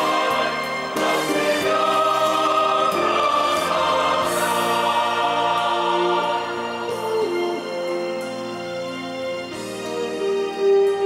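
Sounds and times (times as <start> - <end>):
choir singing a hymn: 0.0 - 8.2.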